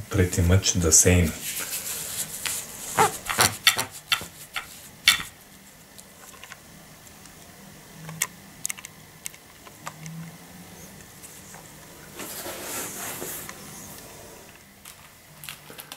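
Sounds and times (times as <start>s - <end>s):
paper towel crinkling: 1.2s - 6.0s.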